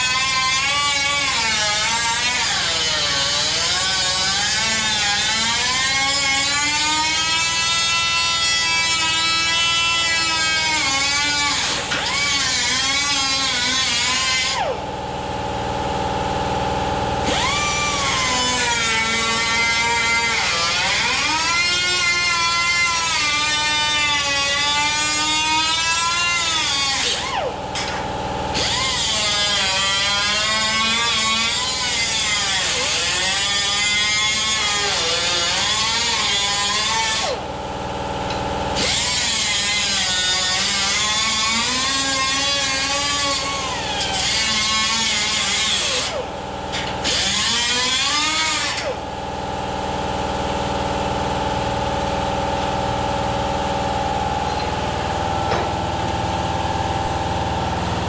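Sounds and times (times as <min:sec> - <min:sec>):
grinder cutting sheet steel: 0:00.0 - 0:14.8, 0:17.2 - 0:37.5, 0:38.3 - 0:49.1
angle grinder motor whine: 0:15.8 - 0:25.1.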